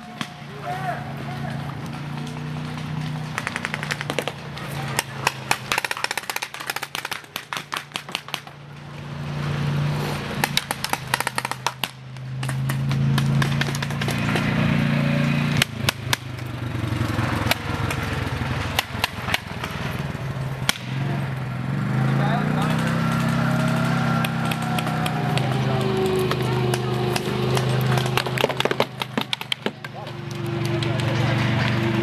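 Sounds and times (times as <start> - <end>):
paintball markers firing: 2.7 - 8.6, 10.4 - 14.5, 18.7 - 19.8, 24.2 - 31.0.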